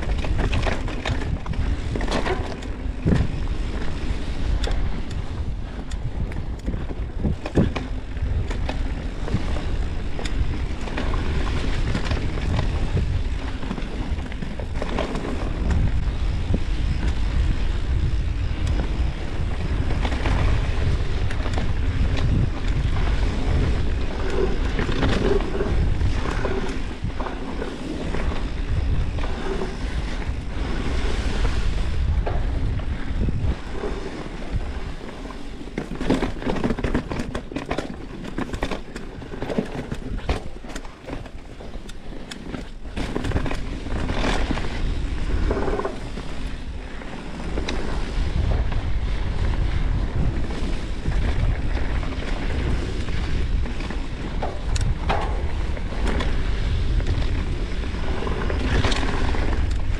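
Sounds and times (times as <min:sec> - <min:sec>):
bike rattling on rough ground: 0:00.0 - 0:59.9
wind rushing over microphone: 0:00.0 - 0:59.9.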